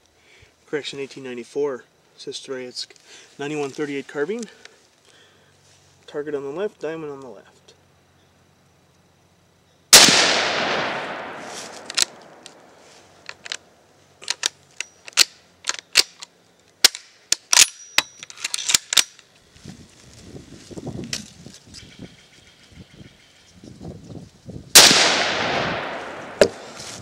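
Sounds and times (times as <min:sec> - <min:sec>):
rifle shot: 0:09.9 - 0:12.5, 0:24.7 - 0:26.7
rifle bolt metallic clicks: 0:11.8 - 0:12.6, 0:14.2 - 0:19.2.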